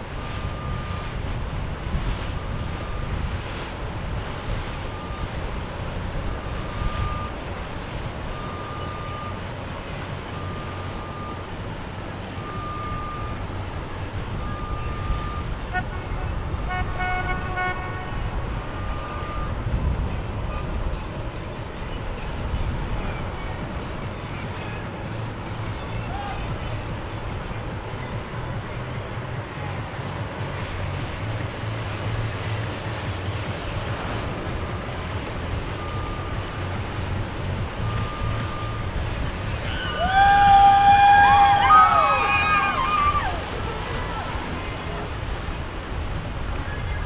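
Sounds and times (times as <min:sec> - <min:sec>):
wind buffeting microphone: 0:00.0 - 0:12.5, 0:13.2 - 0:47.0
boat engines rumbling: 0:00.0 - 0:47.0
horn-like tone: 0:14.3 - 0:19.5
short high beeps: 0:35.7 - 0:36.8, 0:37.8 - 0:39.0.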